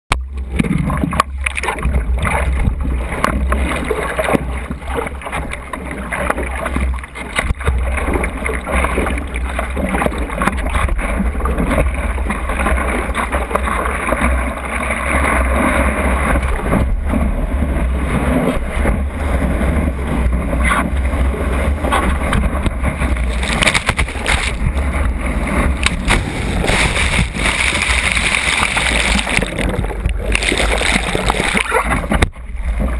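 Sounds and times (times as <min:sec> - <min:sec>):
water slapping board: 0:00.1 - 0:32.9
water sloshing against board: 0:00.3 - 0:32.9
wind buffeting microphone: 0:16.3 - 0:32.9.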